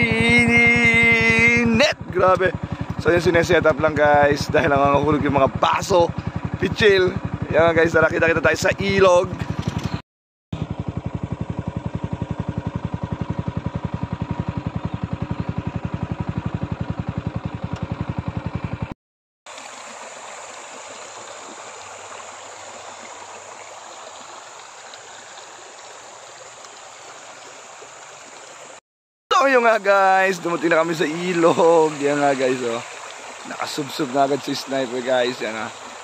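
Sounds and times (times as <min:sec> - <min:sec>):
motorcycle engine running: 0:00.0 - 0:10.0, 0:10.6 - 0:19.0
river flowing over rocks: 0:19.5 - 0:28.8.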